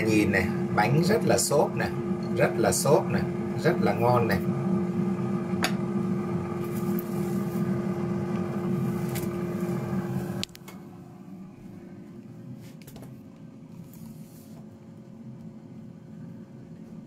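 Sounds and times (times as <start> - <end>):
air fryer fan hum: 0.0 - 13.1.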